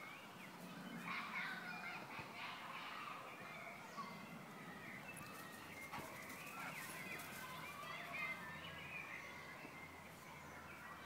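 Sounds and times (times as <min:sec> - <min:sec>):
birds chirping and singing: 0:00.0 - 0:11.0
footsteps rustling dry leaves: 0:05.2 - 0:08.0.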